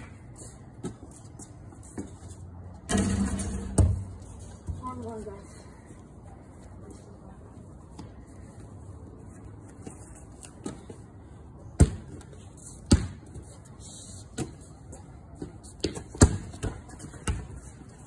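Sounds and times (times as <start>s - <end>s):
basketball bouncing on concrete: 2.9s - 4.8s, 11.8s - 12.2s, 12.9s - 13.2s, 15.4s - 17.6s.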